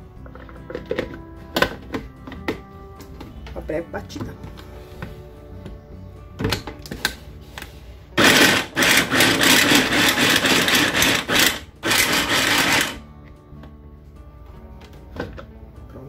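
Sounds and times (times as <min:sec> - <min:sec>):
food processor chopping: 0:08.2 - 0:13.0.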